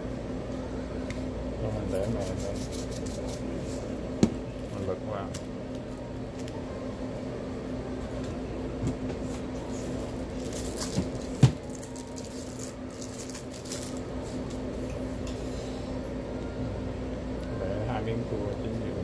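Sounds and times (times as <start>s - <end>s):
steady low hum: 0.0s - 19.0s.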